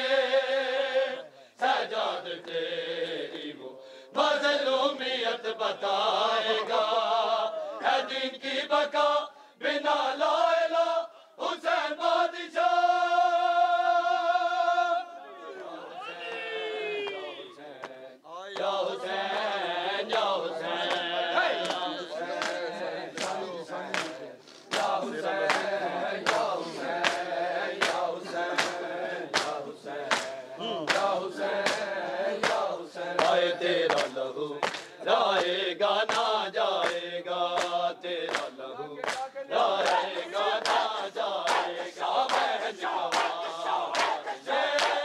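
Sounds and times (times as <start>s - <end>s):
men chanting a lament: 0.0s - 45.0s
hand slaps on chest: 20.9s - 22.6s, 23.2s - 28.8s, 29.4s - 40.0s.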